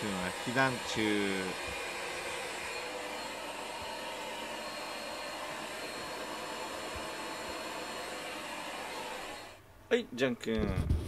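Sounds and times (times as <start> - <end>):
vacuum cleaner running: 0.0 - 9.6.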